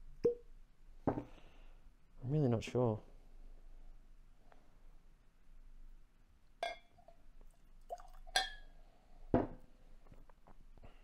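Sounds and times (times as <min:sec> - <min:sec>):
bottle set down on bench: 0:01.0 - 0:01.3, 0:09.3 - 0:09.6
glass clinking: 0:06.6 - 0:07.2, 0:07.9 - 0:08.7
whisky pouring: 0:07.0 - 0:08.6.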